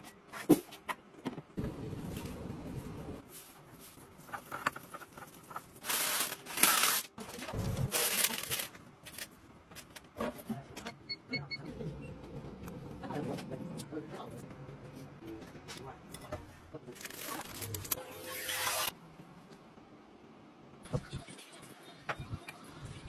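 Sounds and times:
paper packaging rustling: 0:03.2 - 0:10.2, 0:16.9 - 0:18.0.

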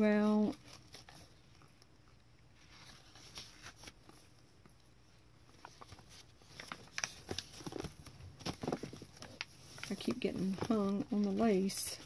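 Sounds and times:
paper pages turning: 0:02.6 - 0:04.8, 0:05.5 - 0:12.0.

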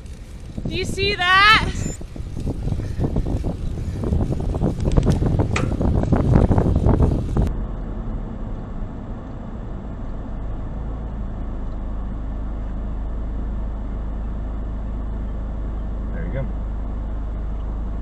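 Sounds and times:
wind buffeting microphone: 0:00.0 - 0:07.5
car cabin rumble: 0:00.0 - 0:18.0.

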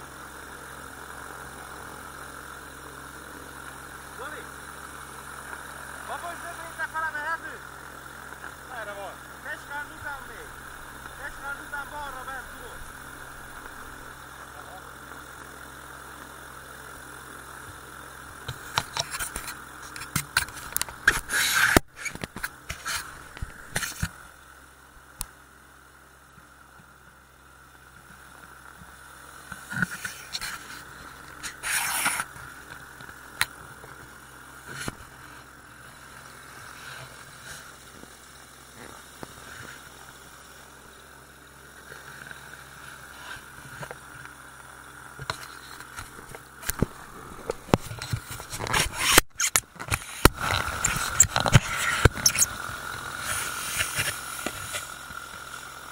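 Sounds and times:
aircraft engine running: 0:00.0 - 0:25.2.

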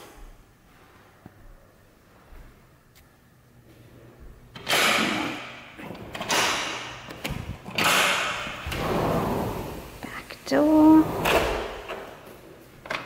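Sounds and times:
sliding door rolling on track: 0:04.6 - 0:13.0.

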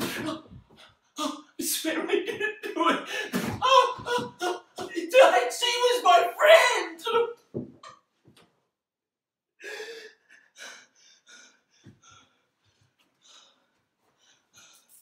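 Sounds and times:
man gasping: 0:03.0 - 0:04.7.

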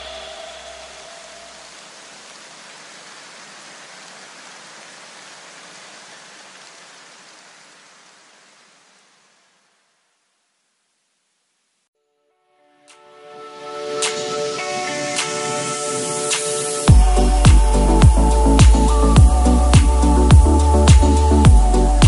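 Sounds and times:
steady hiss: 0:00.0 - 0:11.9, 0:13.8 - 0:22.0
low music tones: 0:12.9 - 0:22.0.

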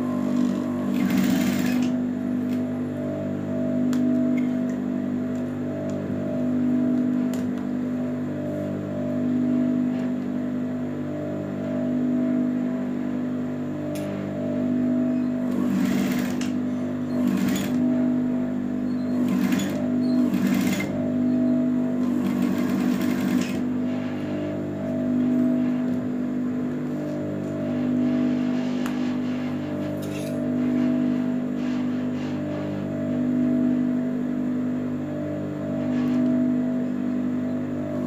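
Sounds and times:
sewing machine humming: 0:00.0 - 0:02.7, 0:15.2 - 0:18.0, 0:18.9 - 0:24.3
sewing machine stitching: 0:00.2 - 0:02.0, 0:15.5 - 0:16.6, 0:17.2 - 0:17.8, 0:19.1 - 0:20.9, 0:22.1 - 0:23.6.

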